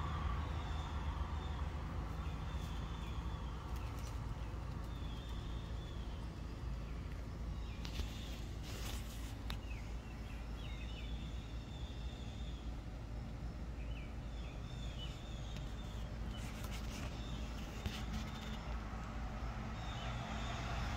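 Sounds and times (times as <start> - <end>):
birds chirping: 0.0 - 20.9.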